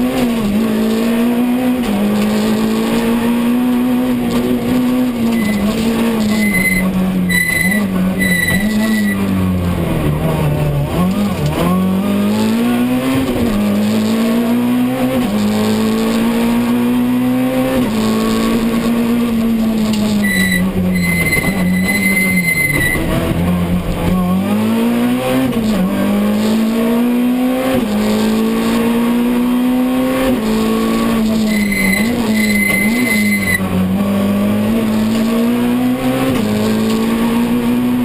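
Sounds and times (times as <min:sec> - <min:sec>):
rally car engine revving: 0:00.0 - 0:38.0
short high beeps: 0:05.3 - 0:09.2, 0:20.2 - 0:23.1, 0:31.4 - 0:33.6.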